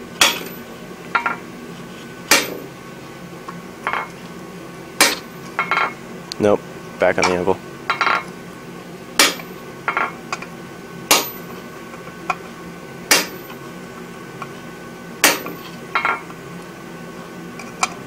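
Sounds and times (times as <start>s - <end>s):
sledgehammer striking chisel: 0.2s - 0.6s, 2.3s - 2.7s, 5.0s - 5.8s, 9.2s - 10.1s, 11.1s - 11.5s, 13.1s - 13.6s, 15.2s - 16.2s.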